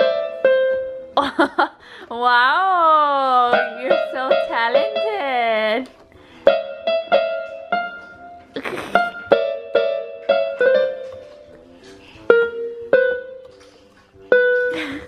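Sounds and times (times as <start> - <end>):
electronic keyboard single notes: 3.4 - 5.8, 12.3 - 15.0.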